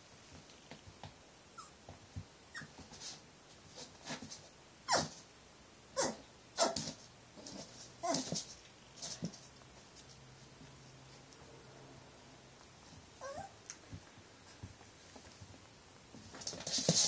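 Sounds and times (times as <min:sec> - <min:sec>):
puppy barking: 0:06.0 - 0:06.9.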